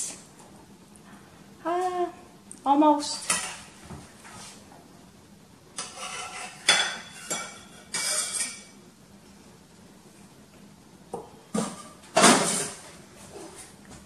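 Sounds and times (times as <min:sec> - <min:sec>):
metal utensils scraping on pan: 0:05.8 - 0:08.8.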